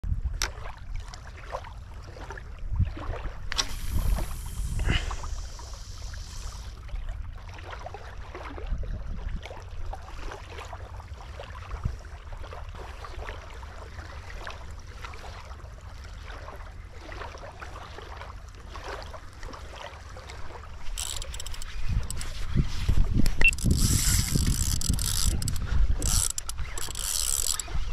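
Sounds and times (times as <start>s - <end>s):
small waves lapping: 0.3s - 27.9s
fishing line running off reel: 3.5s - 6.8s, 20.7s - 27.9s
wind buffeting microphone: 20.7s - 27.9s
clicks and rustles: 20.8s - 27.8s.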